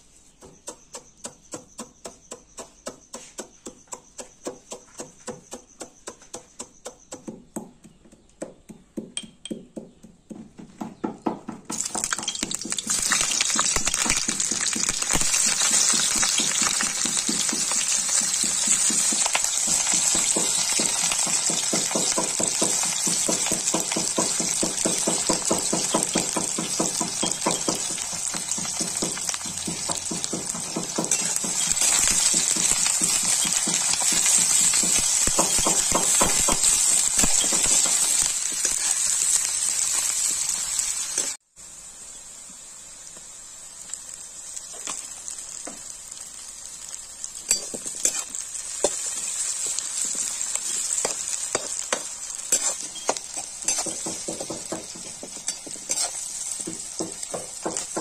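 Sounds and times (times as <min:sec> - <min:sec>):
pestle pounding in a mortar: 0:00.4 - 0:38.7, 0:51.0 - 0:58.0
onions frying in hot oil: 0:11.7 - 0:58.0.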